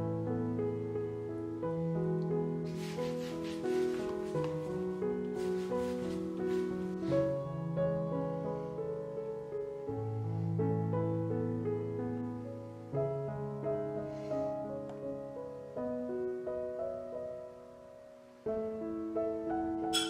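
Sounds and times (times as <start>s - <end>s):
slow piano music: 0.0s - 20.0s.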